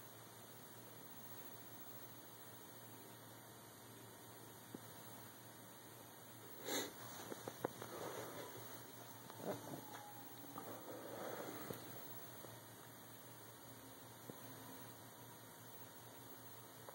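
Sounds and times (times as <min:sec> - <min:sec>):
faint low hum with hiss: 0:00.0 - 0:16.9
breathy rush of noise: 0:06.5 - 0:12.7.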